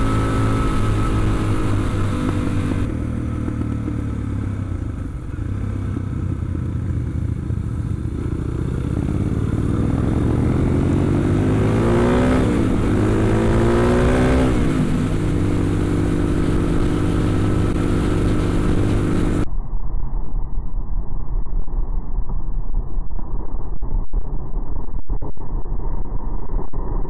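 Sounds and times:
motorcycle engine accelerating: 0.0s - 19.5s.

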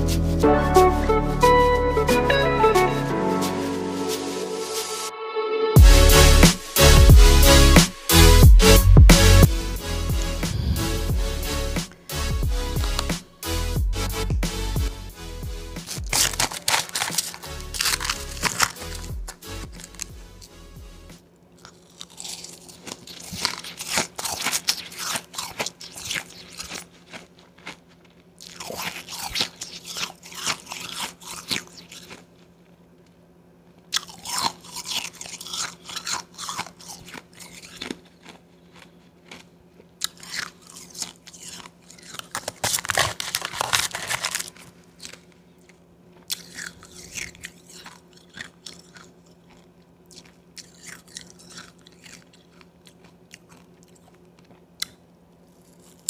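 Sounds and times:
crunching and chewing ice: 12.0s - 13.2s, 15.8s - 20.6s, 21.5s - 32.8s, 33.8s - 56.0s.

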